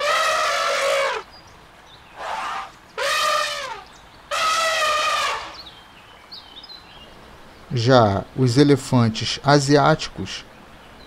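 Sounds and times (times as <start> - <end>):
elephant trumpeting: 0.0 - 1.3, 2.2 - 5.6.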